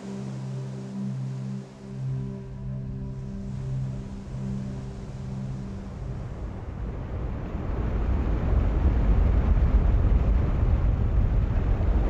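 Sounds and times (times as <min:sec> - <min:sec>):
background music held tones: 0:00.0 - 0:12.0
surf rushing and churning: 0:03.3 - 0:12.0.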